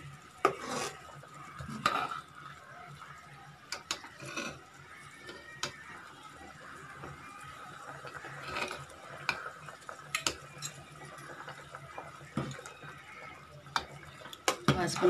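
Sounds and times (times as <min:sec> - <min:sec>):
ladle stirring curry in pot: 0:00.4 - 0:02.3.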